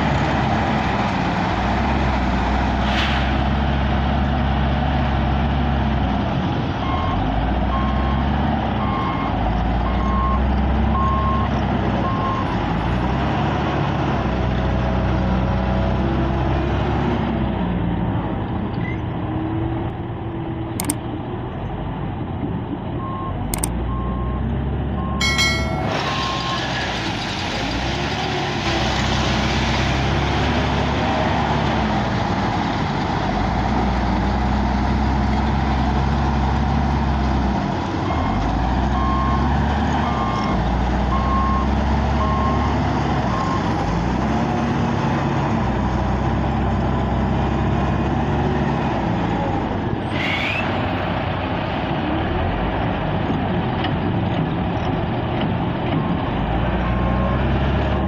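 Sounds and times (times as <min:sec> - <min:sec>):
wheel loader diesel engine revving: 0:00.0 - 0:20.2, 0:23.0 - 0:58.0
reversing alarm beeping: 0:25.0 - 0:26.7.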